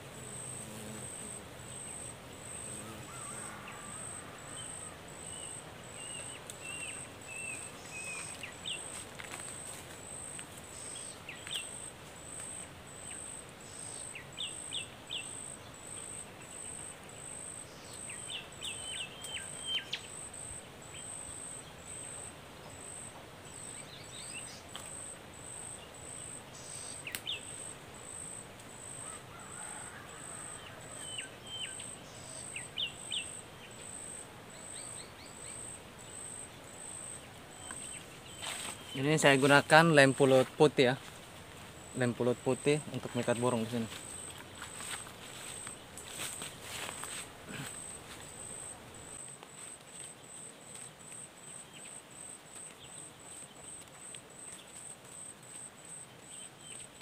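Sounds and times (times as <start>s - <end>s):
insect pulsing call: 0.0s - 57.0s
small birds chirping: 4.6s - 9.6s, 13.0s - 22.0s, 31.0s - 41.1s.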